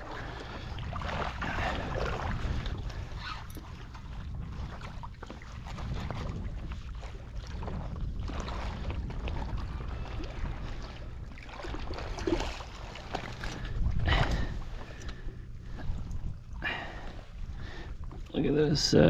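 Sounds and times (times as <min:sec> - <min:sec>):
small water splashes: 0:00.0 - 0:18.4
wind rumble on microphone: 0:00.0 - 0:19.0.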